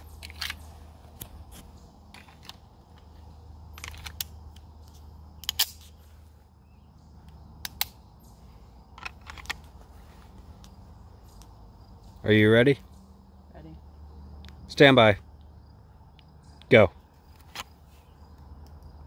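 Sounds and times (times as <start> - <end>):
pistol metallic clicks: 3.6 - 6.0, 7.2 - 8.0.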